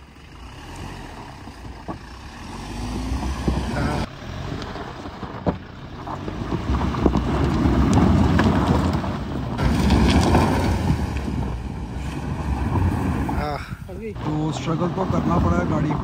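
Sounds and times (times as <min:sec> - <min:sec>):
car engine pulling hard: 0:00.0 - 0:16.0
chassis scraping: 0:00.0 - 0:16.0
tyres spinning in sand and gravel: 0:00.0 - 0:16.0
stones knocking: 0:05.2 - 0:11.6.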